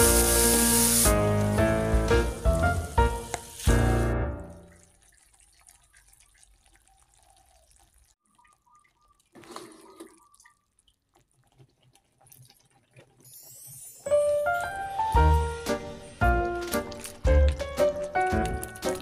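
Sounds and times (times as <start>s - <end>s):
paste ticking and popping in pan: 4.7s - 9.4s, 10.1s - 13.5s, 16.8s - 19.0s.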